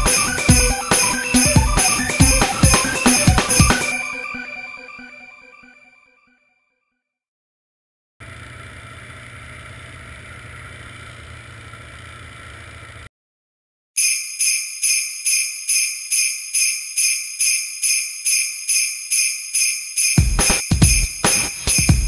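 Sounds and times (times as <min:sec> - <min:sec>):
jingle bells shaking: 0:00.0 - 0:04.4, 0:14.0 - 0:22.0
snowmobile engine drone: 0:08.2 - 0:13.1.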